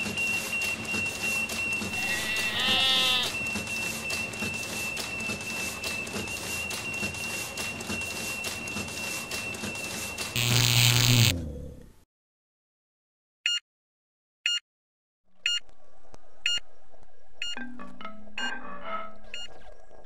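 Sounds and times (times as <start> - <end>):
high-pitched electronic whine: 10.4 - 11.3
static burst with low buzz: 10.4 - 11.3
low hum: 10.4 - 12.0.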